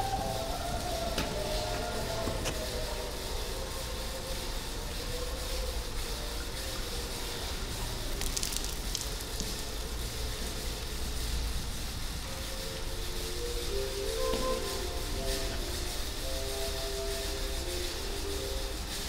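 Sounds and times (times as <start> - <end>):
steady hissing: 0.0 - 19.0
faint clicks: 8.0 - 10.6.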